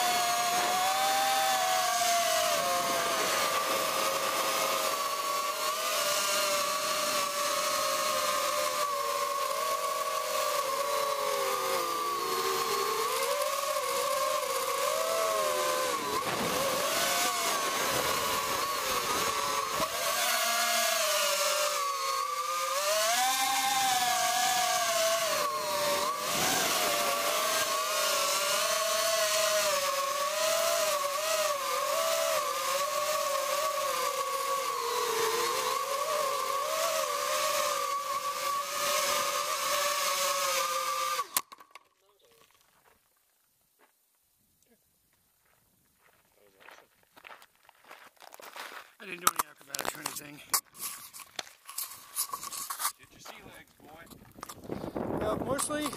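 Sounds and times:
drone propellers whining: 0.0 - 41.5.

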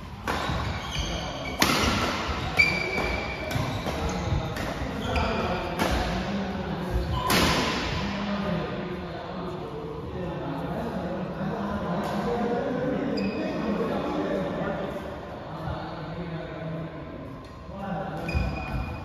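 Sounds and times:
court shoes squeaking: 0.0 - 7.8, 13.0 - 13.8, 18.2 - 19.0
racket hitting shuttlecock: 0.1 - 5.0, 5.6 - 6.3, 6.9 - 8.0.

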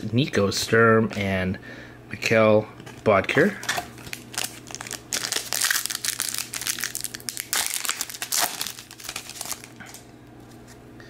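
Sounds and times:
plastic wrapper tearing and crinkling: 4.0 - 10.0.

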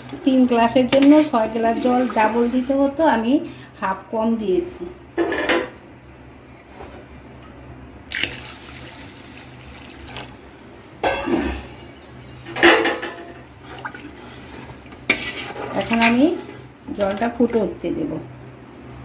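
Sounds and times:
water sloshing in a pot: 0.0 - 4.4, 8.1 - 11.5, 12.5 - 18.2.

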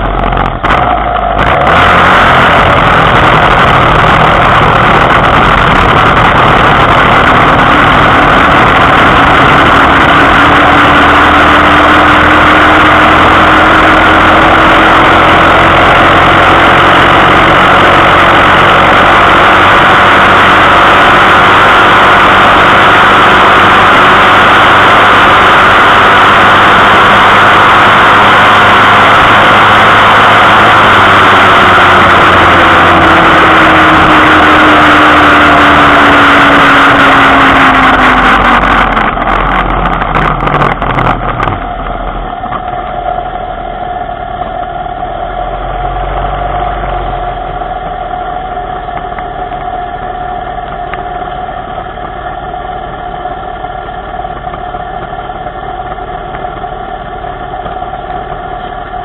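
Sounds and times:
small motorbike engine: 0.0 - 59.0.

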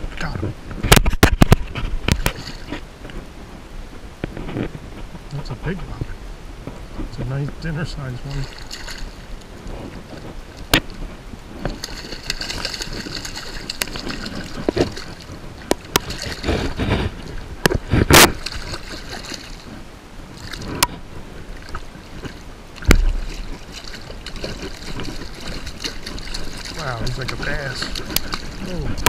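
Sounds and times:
water sloshing and splashing: 0.0 - 29.0
fish thrashing in water: 0.9 - 2.9, 8.2 - 29.0.

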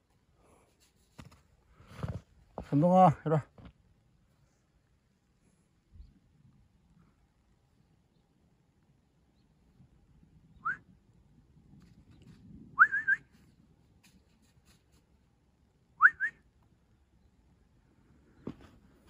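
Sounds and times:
person whistling short rising whistles: 12.8 - 13.3, 16.0 - 16.4.

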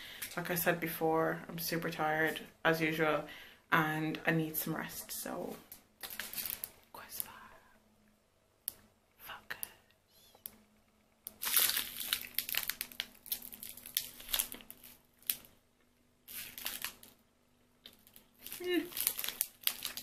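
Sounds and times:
wrapper crinkling and tearing: 6.0 - 6.8, 11.3 - 15.6, 16.2 - 20.0.

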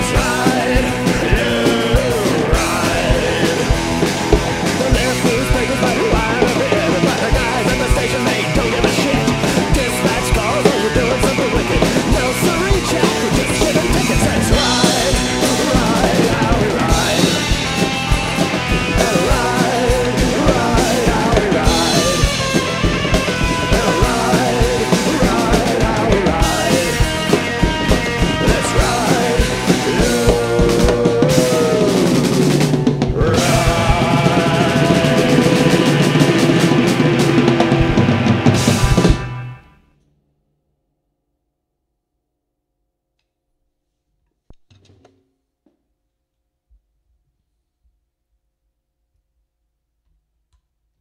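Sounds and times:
drum kit played fast: 0.0 - 39.7
instrumental punk rock music: 0.0 - 39.9.

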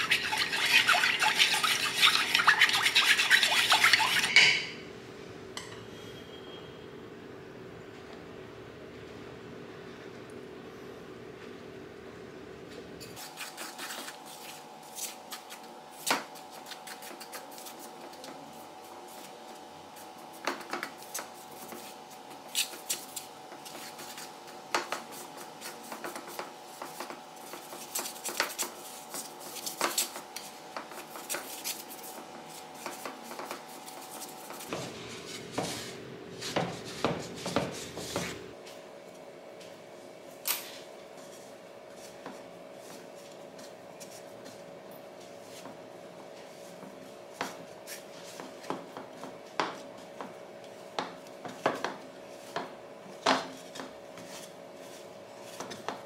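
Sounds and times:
metal utensil scraping bowl: 0.0 - 4.8.

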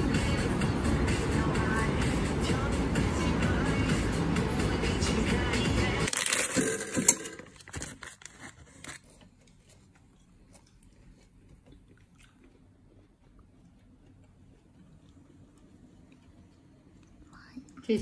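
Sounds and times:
plastic bag crinkling: 6.0 - 9.3.

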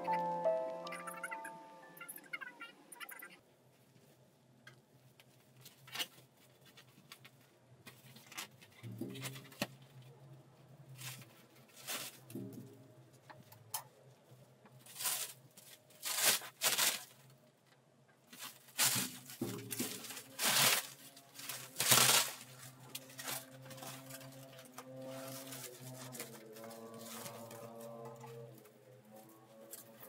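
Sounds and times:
soft background music: 0.0 - 3.0, 22.2 - 30.0
rustling and handling noises: 3.5 - 30.0.

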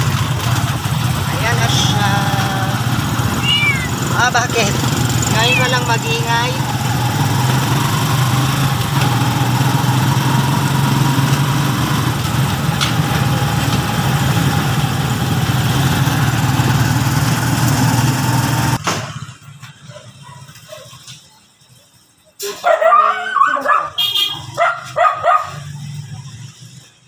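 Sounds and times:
motorcycle engine running: 0.0 - 19.9
road noise: 0.0 - 27.0.

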